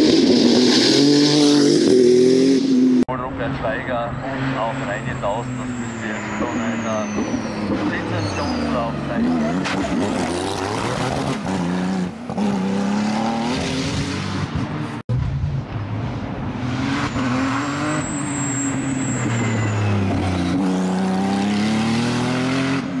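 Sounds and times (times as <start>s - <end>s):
race car engine accelerating: 16.6s - 23.0s.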